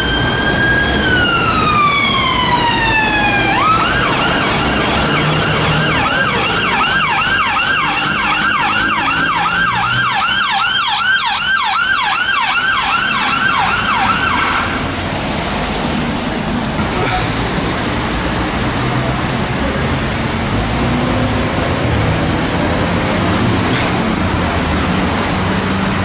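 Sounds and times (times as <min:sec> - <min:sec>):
ambulance siren yelping: 0:00.0 - 0:15.0
higher sweeping siren tone: 0:00.0 - 0:15.0
low traffic rumble: 0:00.0 - 0:26.0.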